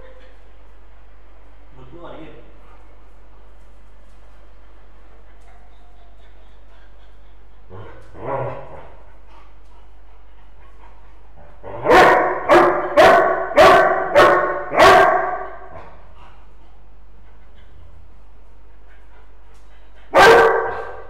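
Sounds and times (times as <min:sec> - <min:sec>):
dog barking: 0:11.7 - 0:15.8, 0:20.1 - 0:21.0.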